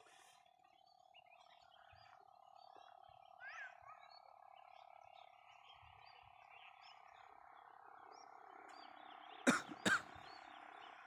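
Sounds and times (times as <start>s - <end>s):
frog chorus drone: 0.1s - 11.0s.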